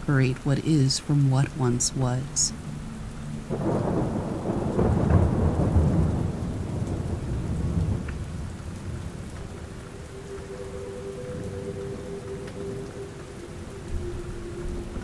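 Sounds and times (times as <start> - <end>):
steady rain: 0.0 - 15.0
rolling thunder: 3.4 - 10.0.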